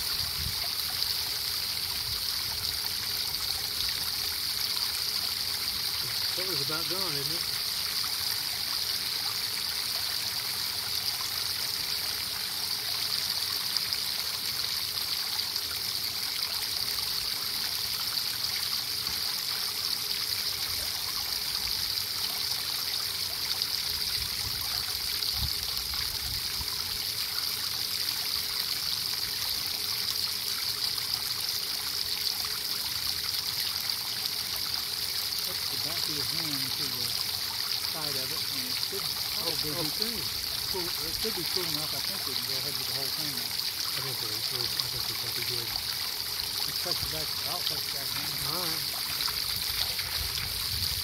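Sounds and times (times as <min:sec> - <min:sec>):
water splashing into a bucket: 0:32.0 - 0:51.0.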